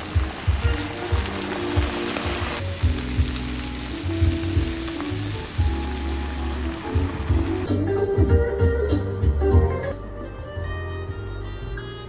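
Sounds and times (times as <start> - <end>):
background music with a beat: 0.0 - 5.9, 6.8 - 12.0
broth sizzling in a pan: 0.0 - 7.7.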